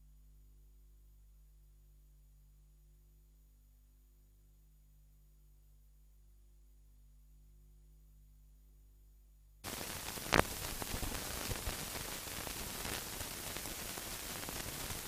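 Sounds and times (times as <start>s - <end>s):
faint hum: 0.0s - 15.0s
static hiss: 9.6s - 15.0s
faint clicks: 10.1s - 11.7s.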